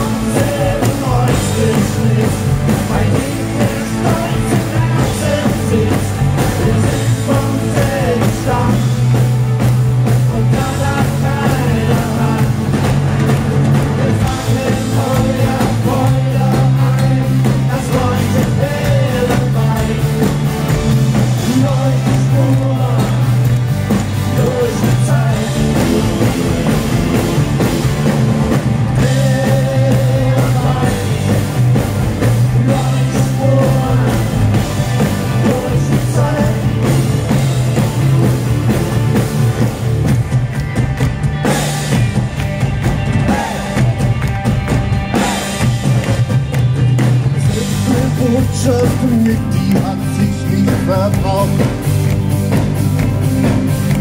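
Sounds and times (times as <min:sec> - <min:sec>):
person singing: 0:00.0 - 0:09.3, 0:10.1 - 0:12.8, 0:14.0 - 0:27.3, 0:28.9 - 0:31.9, 0:32.5 - 0:37.1, 0:47.4 - 0:51.9
bass: 0:00.0 - 0:54.0
drums: 0:00.0 - 0:54.0
electric guitars: 0:00.0 - 0:54.0
keyboards: 0:00.0 - 0:54.0.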